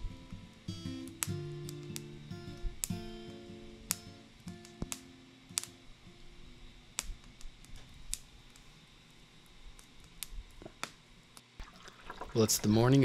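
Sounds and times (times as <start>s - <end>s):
acoustic guitar music: 0.0s - 7.4s.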